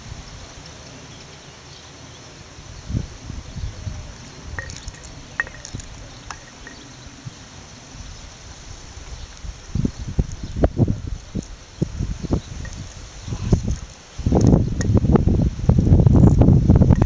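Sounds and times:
wind buffeting microphone: 0:02.6 - 0:17.0
small sharp clicks and ticks: 0:12.6 - 0:15.0.

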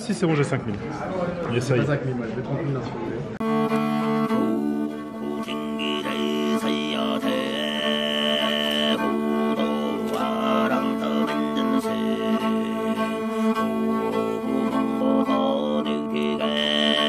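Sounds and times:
melody over low drone: 0:03.4 - 0:17.0.

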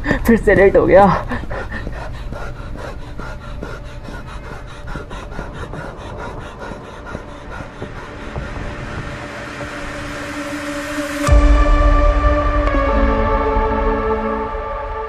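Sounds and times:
boy panting: 0:00.0 - 0:11.3
running footsteps: 0:00.0 - 0:11.3.

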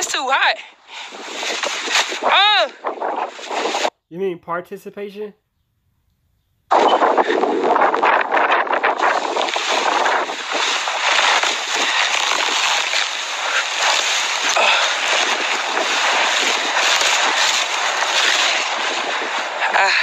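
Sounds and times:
bubble wrap crinkling: 0:09.0 - 0:19.2.

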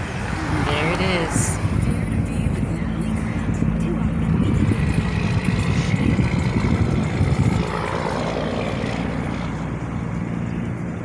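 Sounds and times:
car cabin rumble: 0:01.6 - 0:07.9.

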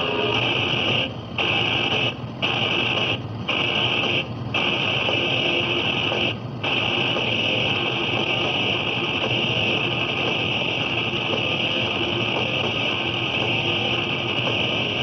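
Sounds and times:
harsh high-pitched radio noise: 0:00.0 - 0:15.0.

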